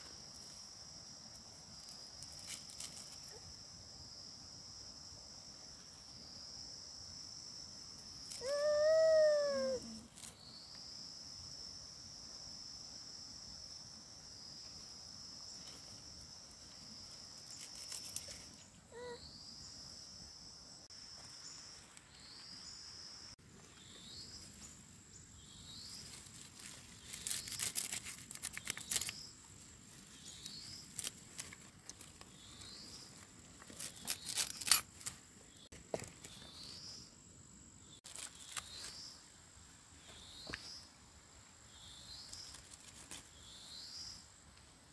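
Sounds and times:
insects chirping: 0.0s - 44.9s
leaves rustling being pulled: 1.8s - 3.4s, 25.9s - 35.3s, 38.0s - 39.0s, 42.3s - 43.4s.

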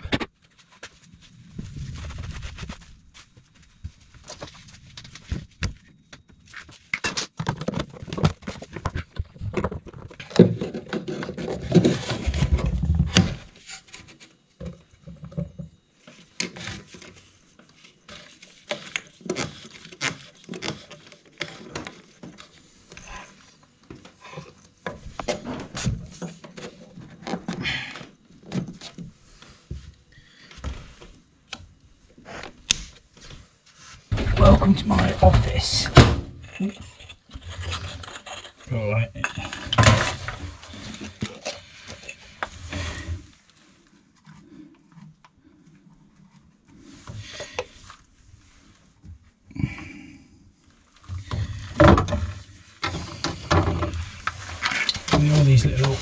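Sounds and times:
clicks knocks and scrapes on plastic pipe: 4.2s - 23.1s, 51.0s - 56.0s.

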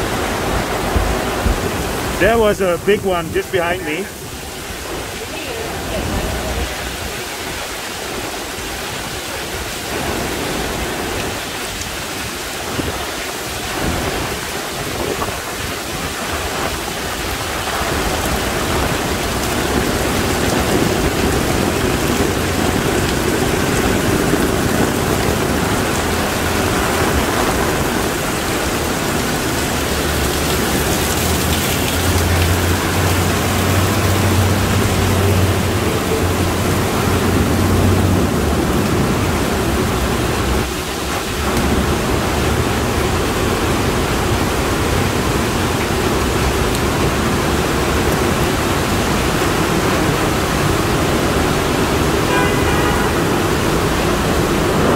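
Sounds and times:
heavy rain pouring: 0.0s - 54.9s.

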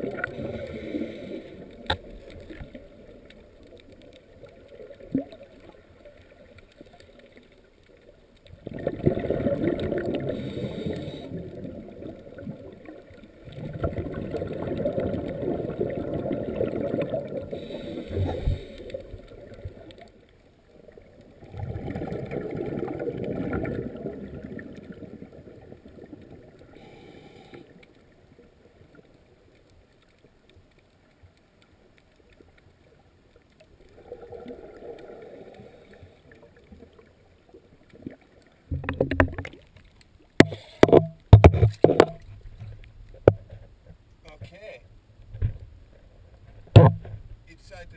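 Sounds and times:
underwater exhaust bubbles: 0.0s - 29.1s, 32.2s - 39.8s.

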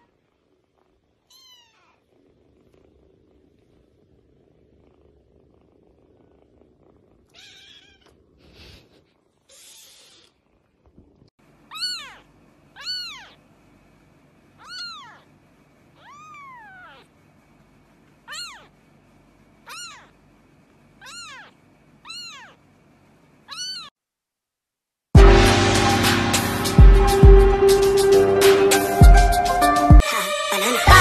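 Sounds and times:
kitten mewing: 6.1s - 10.4s, 11.7s - 13.4s, 14.6s - 15.3s, 16.0s - 17.1s, 18.2s - 18.7s, 19.6s - 20.2s, 21.0s - 22.6s, 23.5s - 23.9s.

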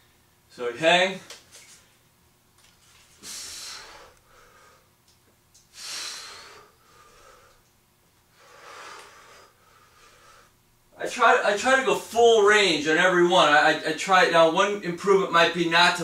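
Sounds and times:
man breathing forcefully: 3.2s - 4.9s, 5.7s - 7.7s, 8.3s - 10.6s.

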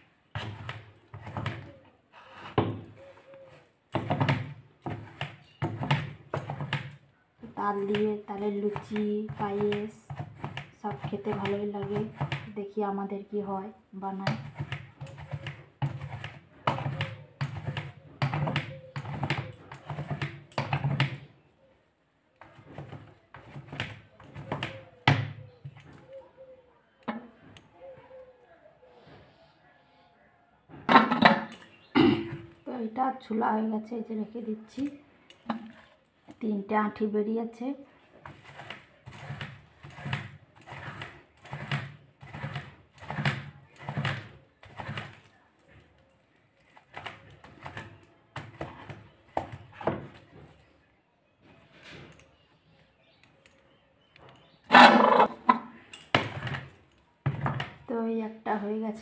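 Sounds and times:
fruit pulp rasping on scraper: 0.3s - 7.0s, 7.7s - 12.6s, 14.2s - 21.2s, 22.4s - 25.2s, 38.2s - 45.8s, 46.6s - 50.2s, 54.7s - 57.7s
fruit rasping on grater board: 14.2s - 21.0s, 38.2s - 45.7s, 46.7s - 50.0s.

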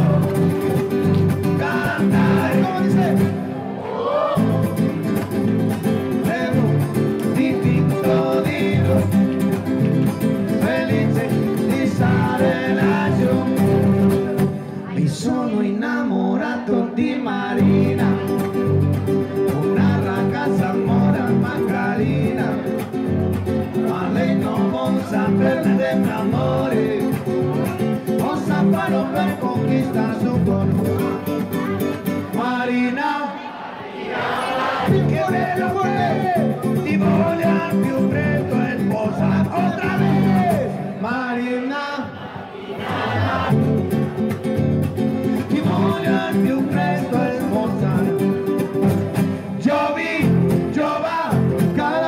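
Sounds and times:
person singing: 0.0s - 5.1s, 5.9s - 9.7s, 10.4s - 23.0s, 23.6s - 33.4s, 34.5s - 41.9s, 45.3s - 48.8s
guitar accompaniment: 0.0s - 41.5s, 42.8s - 52.0s.

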